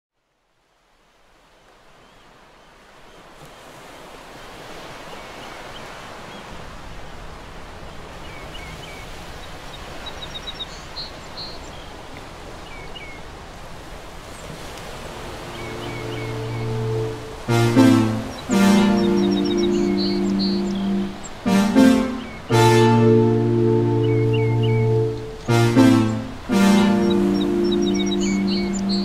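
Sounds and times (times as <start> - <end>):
flowing water rushing: 1.0 - 29.0
quick run of high notes: 15.2 - 29.0.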